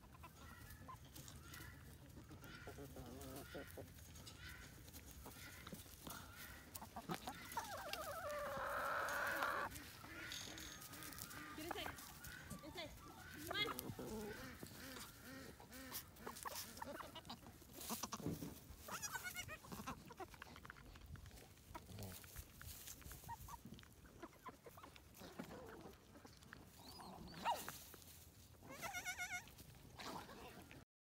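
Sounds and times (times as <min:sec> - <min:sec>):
goat kids bleating: 0:00.2 - 0:20.3, 0:28.6 - 0:30.7
rustling and scuffing on straw: 0:00.4 - 0:20.1, 0:21.2 - 0:30.8.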